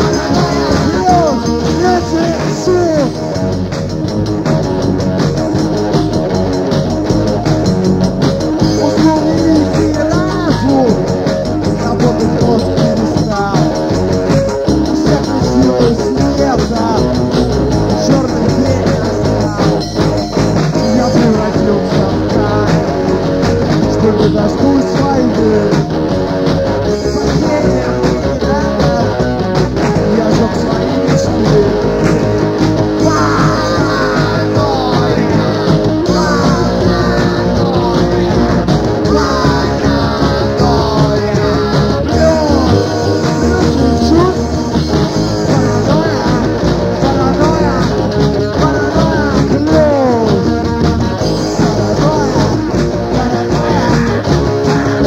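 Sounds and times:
bass: 0.0 - 55.0
drums: 0.0 - 55.0
electric guitar: 0.0 - 55.0.

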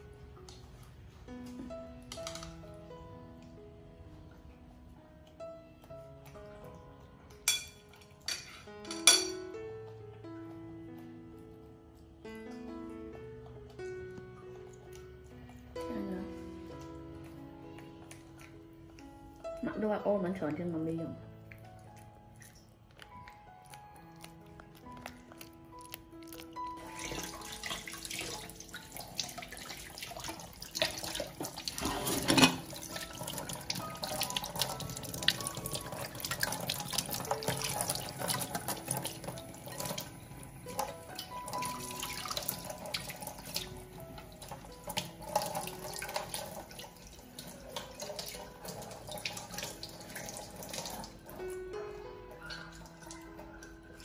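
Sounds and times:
tap water splashing in sink: 26.8 - 40.1.

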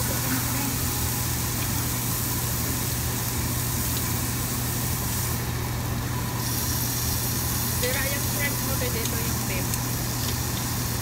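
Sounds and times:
exhaust hood running: 0.0 - 11.0
meat sizzling on a grill: 0.0 - 11.0.

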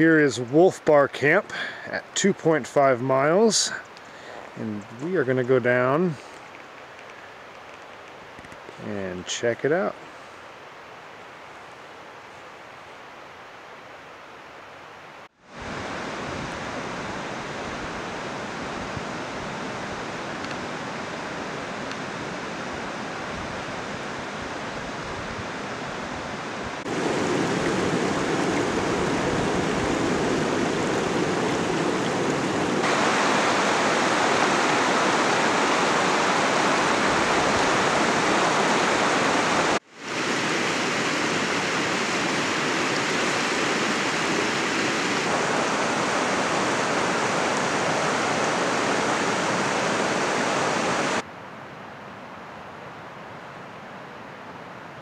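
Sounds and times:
river rushing over cobbles: 15.4 - 51.3.

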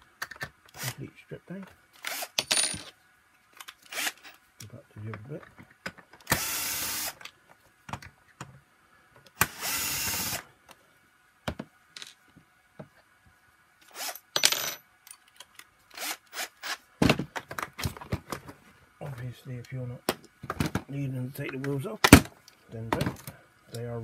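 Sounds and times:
plastic parts clicking and knocking: 0.1 - 0.8, 4.6 - 6.3, 7.2 - 8.6, 17.0 - 18.6, 20.0 - 23.4
cordless drill running: 3.9 - 4.4, 6.3 - 7.2, 9.4 - 10.4, 15.9 - 16.5.

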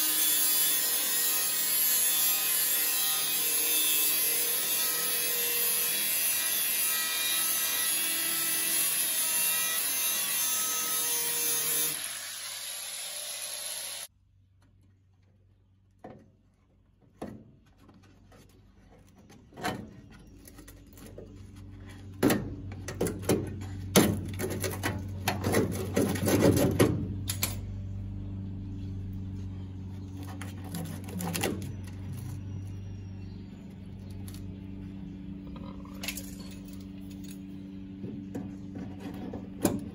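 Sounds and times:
angle grinder cutting sheet metal: 0.0 - 14.1.

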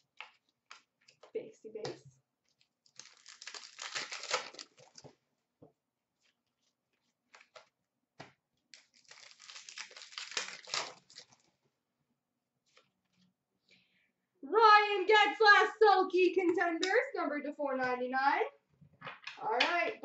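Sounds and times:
wrappers tearing and crinkling: 2.5 - 5.1, 8.7 - 11.5.

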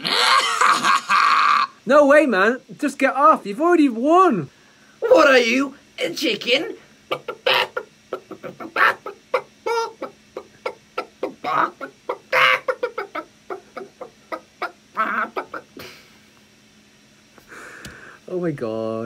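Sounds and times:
man imitating chicken clucks: 7.1 - 15.8.

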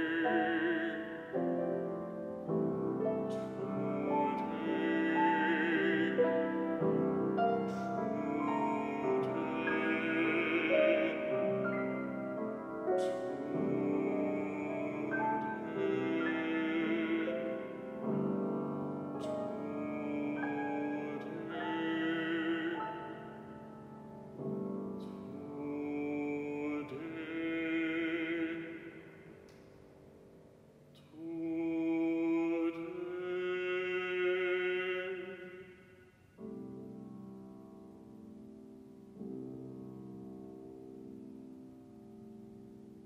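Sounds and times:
bass-baritone singing: 0.0 - 2.0, 3.1 - 12.1, 12.8 - 23.4, 25.0 - 29.2, 31.0 - 35.7
grand piano: 0.0 - 43.0.

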